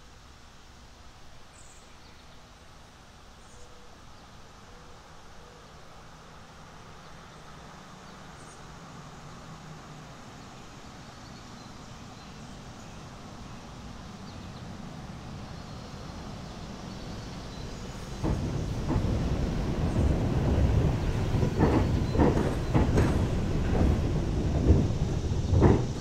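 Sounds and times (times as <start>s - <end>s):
mountain stream rushing: 17.5s - 26.0s.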